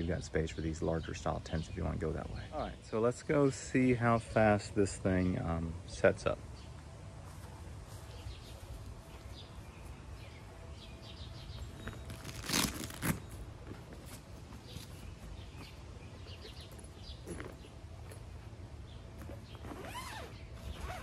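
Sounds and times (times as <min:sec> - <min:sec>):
birds chirping: 0:00.0 - 0:21.0
bag rustling: 0:11.7 - 0:15.1.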